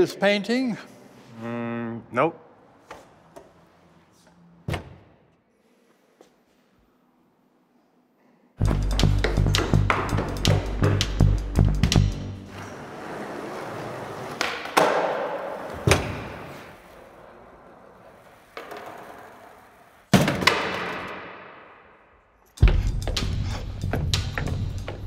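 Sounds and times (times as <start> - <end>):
skateboard clacks: 8.7 - 11.3, 13.9 - 16.8, 18.0 - 21.4
skateboard wheels rolling: 12.4 - 21.3.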